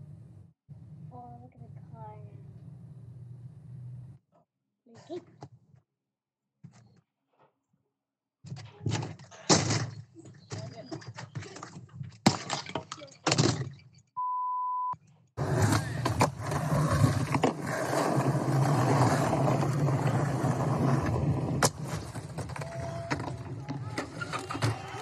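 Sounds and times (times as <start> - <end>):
short steady beep: 14.2 - 15.0
skateboard wheels rolling on pavement: 15.4 - 25.0.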